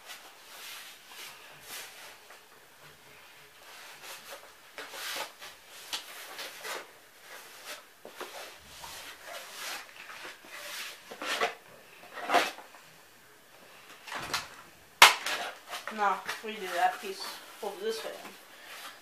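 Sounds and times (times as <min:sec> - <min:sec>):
cardboard scraping and rustling: 0:03.7 - 0:12.6.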